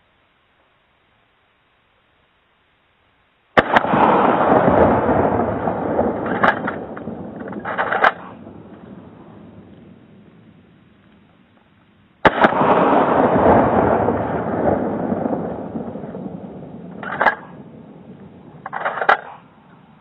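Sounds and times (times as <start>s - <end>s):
shotgun blast with rolling echo: 3.6s - 11.0s, 12.2s - 19.6s.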